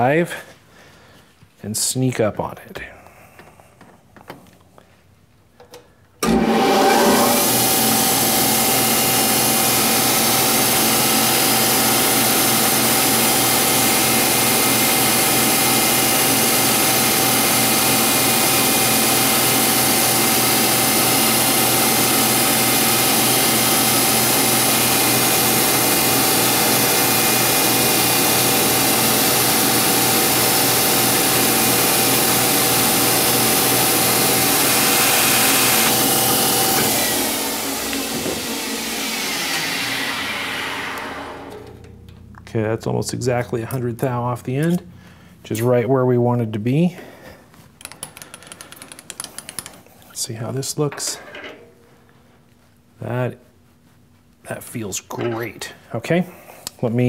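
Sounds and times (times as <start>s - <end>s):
metal lathe whining: 6.2s - 42.0s.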